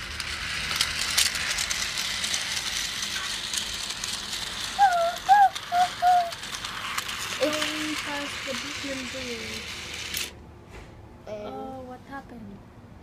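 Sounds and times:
wheels clicking over track joints: 0.0 - 10.3
toy train motor rattling: 0.0 - 10.4.

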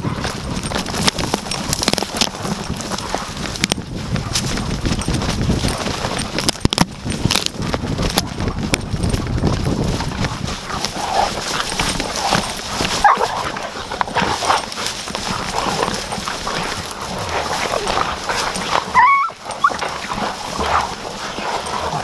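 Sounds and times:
brush scraping and rustling: 9.4 - 22.0
dog yelping: 13.0 - 13.4, 18.9 - 19.9
dogs yipping and whining: 13.0 - 13.4, 17.7 - 20.2.

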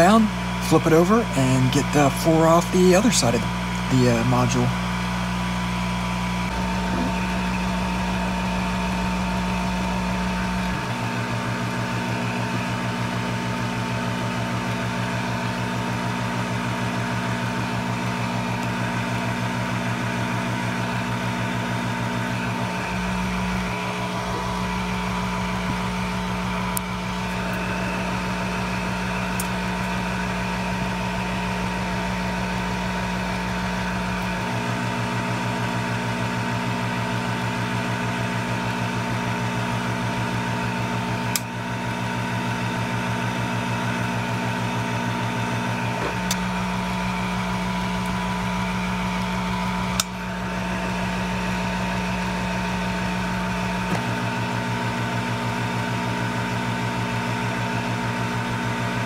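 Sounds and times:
steady whine: 0.0 - 37.4
electrical hum: 0.0 - 59.0.

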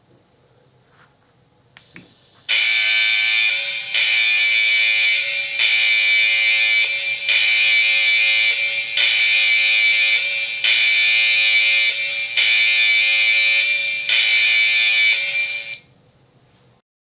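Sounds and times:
switch clicks: 1.8 - 2.1
electronic alarm through loudspeaker: 2.5 - 15.8.

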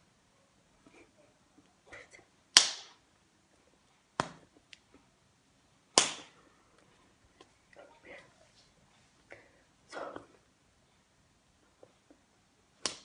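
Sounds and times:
hands smacking together: 2.6 - 3.0, 6.0 - 6.3.

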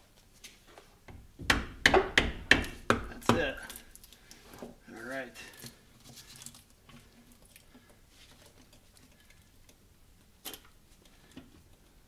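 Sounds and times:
faint ticks and scraping: 3.6 - 12.0.

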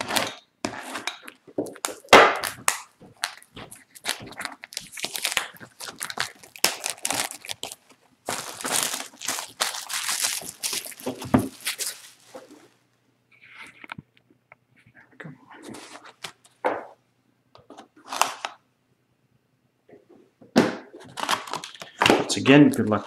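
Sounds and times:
plastic shrink wrap crinkling: 0.0 - 12.9, 21.0 - 23.0.

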